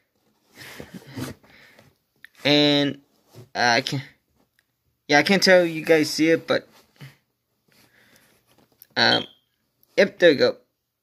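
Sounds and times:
cardboard box rustling: 0:00.1 - 0:01.6.

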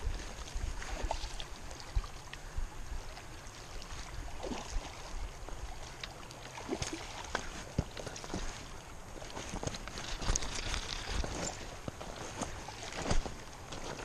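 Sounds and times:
river water running fast: 0:00.0 - 0:14.0
small clicks and splashes: 0:03.2 - 0:14.0.

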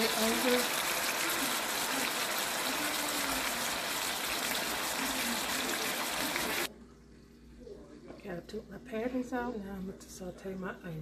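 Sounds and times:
burgers sizzling in a pan: 0:00.0 - 0:06.7.

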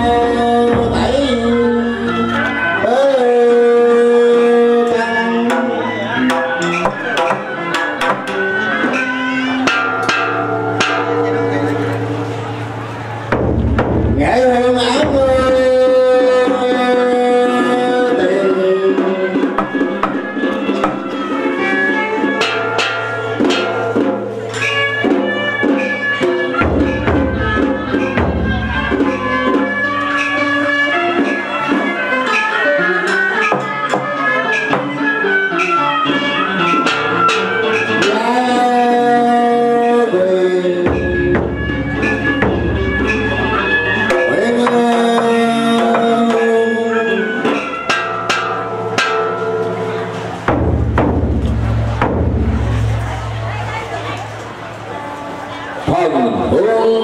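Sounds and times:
held melodic notes: 0:00.0 - 0:57.0
percussion: 0:00.0 - 0:57.0
ritual music ensemble playing: 0:00.0 - 0:57.0
sharp drum or clapper strikes: 0:05.4 - 0:12.4, 0:19.4 - 0:21.2, 0:22.4 - 0:30.5, 0:40.8 - 0:46.5, 0:47.4 - 0:53.3
deep drumming: 0:09.6 - 0:15.9, 0:40.8 - 0:46.4, 0:50.2 - 0:54.2.

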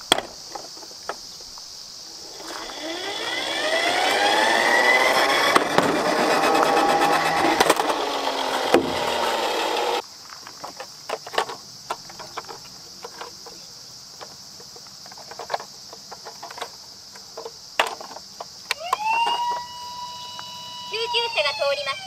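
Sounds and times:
toy electronic siren: 0:18.7 - 0:22.0.

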